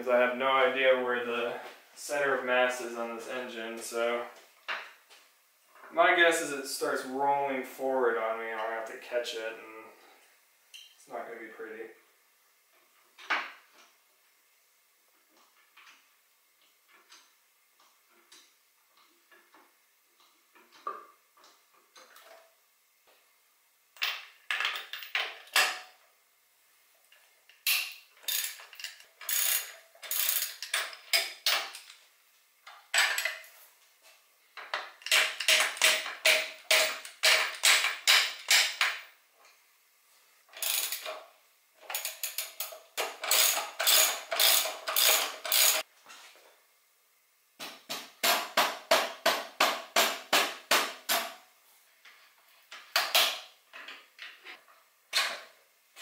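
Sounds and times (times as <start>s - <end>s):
socket ratchet clicking: 27.7s - 31.3s, 40.6s - 41.1s, 41.9s - 45.8s.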